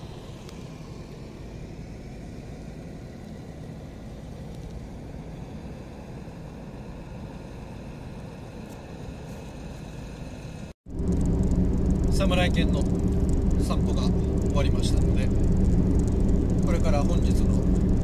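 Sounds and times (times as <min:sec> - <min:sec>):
road traffic rumble: 0:00.0 - 0:18.0
trucks idling: 0:10.9 - 0:18.0.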